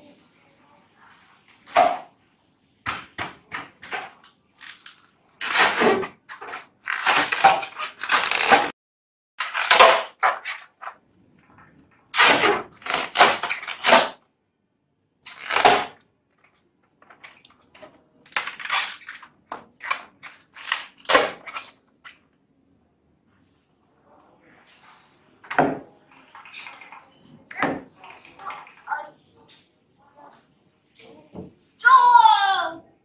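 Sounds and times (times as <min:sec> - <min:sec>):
balloon rubbing and squeaking: 0:04.6 - 0:08.7, 0:15.3 - 0:16.0.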